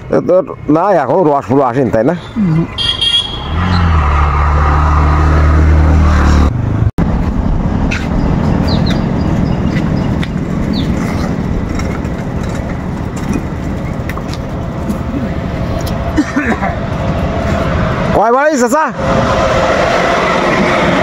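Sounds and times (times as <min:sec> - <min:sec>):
engine humming: 0:00.0 - 0:18.2
rough steady rumble: 0:06.7 - 0:21.0
bird chirps: 0:08.6 - 0:11.0.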